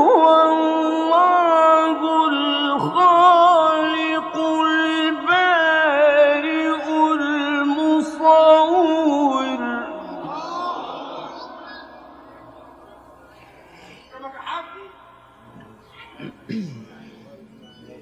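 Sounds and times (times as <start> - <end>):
man reciting melodically: 0.0 - 13.7.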